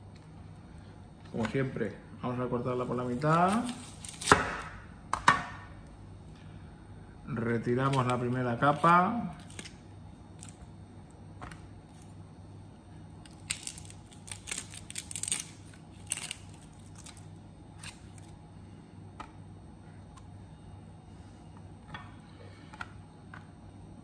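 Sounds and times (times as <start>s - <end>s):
steady low hum: 0.0s - 24.0s
onion skin crackling: 3.0s - 4.7s, 7.8s - 10.7s, 13.2s - 18.4s.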